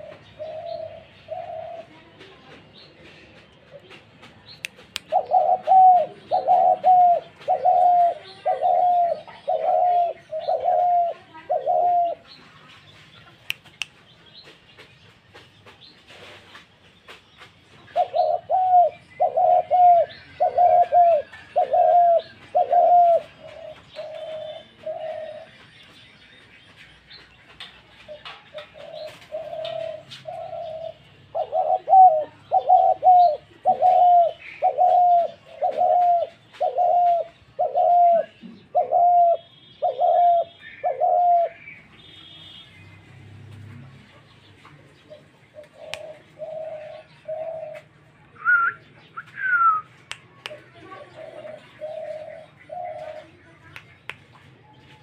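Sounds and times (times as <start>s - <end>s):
dove cooing: 0.0s - 2.3s, 4.7s - 12.3s, 17.8s - 25.6s, 27.9s - 42.3s, 45.0s - 49.8s, 50.5s - 53.6s.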